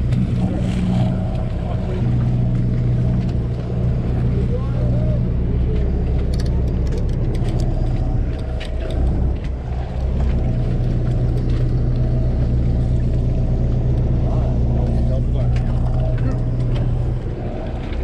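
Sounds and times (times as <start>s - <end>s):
boat engine drone: 0.0s - 18.0s.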